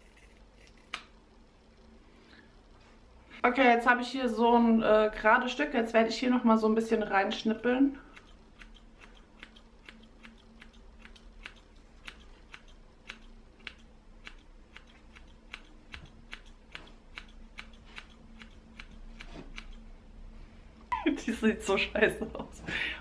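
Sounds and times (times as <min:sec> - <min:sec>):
scissors snipping hair: 0:08.1 - 0:19.9.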